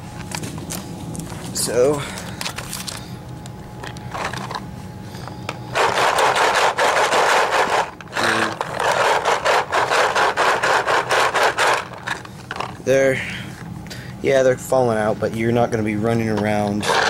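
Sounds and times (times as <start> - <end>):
paintballs rattling in plastic loader: 5.8 - 10.6, 11.2 - 12.8.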